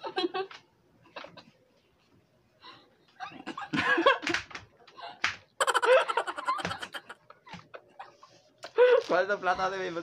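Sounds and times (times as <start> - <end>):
people laughing and giggling: 0.0 - 1.6, 3.1 - 9.2.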